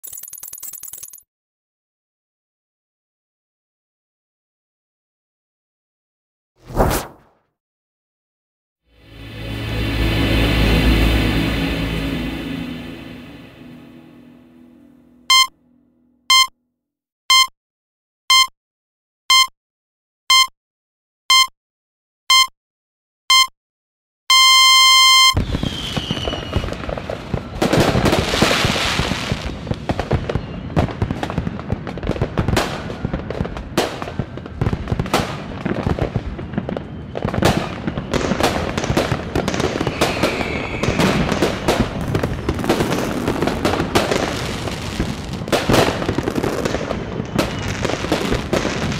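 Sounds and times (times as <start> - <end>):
electronic countdown beeps: 15.3 - 15.5, 16.3 - 16.6, 17.3 - 17.5, 18.3 - 18.5, 19.3 - 19.5, 20.3 - 20.5, 21.3 - 21.5, 22.3 - 22.5, 23.3 - 23.5, 24.3 - 25.4
fireworks falling whistles: 25.3 - 31.5, 35.6 - 48.9
fireworks crackling and bangs: 25.4 - 48.9.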